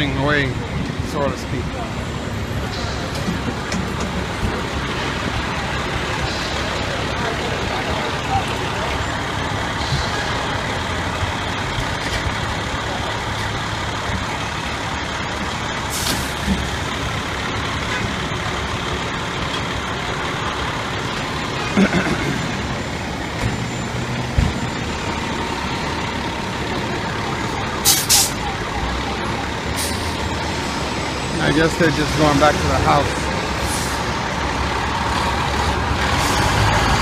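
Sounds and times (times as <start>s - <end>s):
truck engine running: 0.0s - 37.0s
air brakes hissing: 6.0s - 7.7s, 15.9s - 16.5s, 27.8s - 28.4s, 29.7s - 31.1s, 33.5s - 34.2s.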